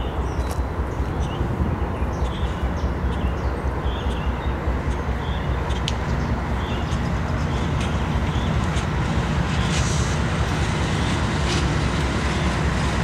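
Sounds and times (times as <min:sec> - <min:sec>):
birds chirping: 0:00.0 - 0:08.9
diesel locomotives rumbling: 0:00.0 - 0:13.0.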